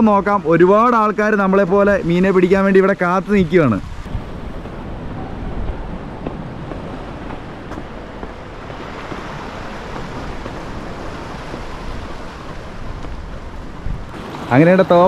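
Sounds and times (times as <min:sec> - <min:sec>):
wind buffeting microphone: 0:01.4 - 0:15.0
waves washing against rocks: 0:03.5 - 0:15.0.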